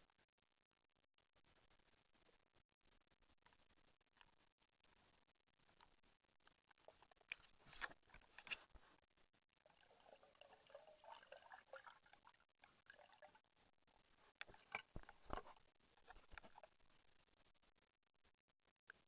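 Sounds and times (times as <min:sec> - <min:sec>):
muffled water sloshing and gurgling: 0:06.8 - 0:16.9.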